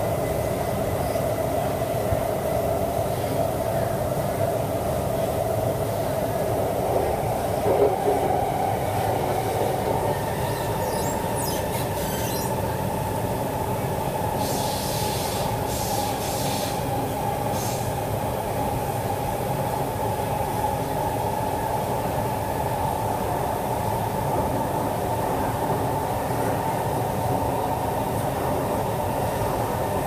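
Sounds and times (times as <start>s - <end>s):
metro train rumble and whine: 0.0s - 30.0s
wheels squealing: 10.5s - 12.6s.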